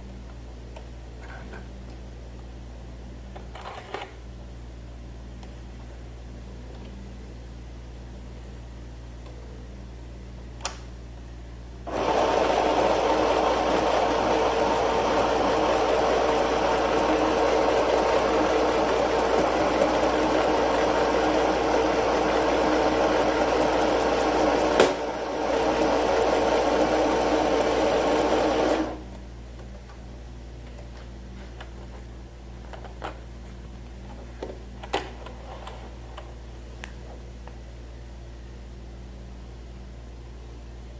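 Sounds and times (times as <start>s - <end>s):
sewing machine stitching: 11.9s - 29.0s.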